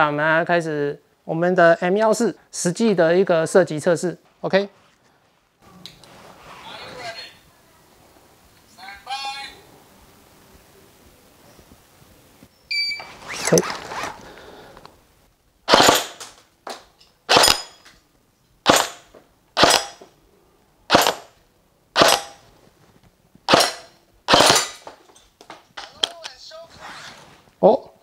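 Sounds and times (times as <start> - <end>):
airsoft rifle shots: 15.7 - 16.4, 17.3 - 17.8, 18.6 - 20.0, 20.9 - 21.4, 22.0 - 22.4, 23.5 - 24.9.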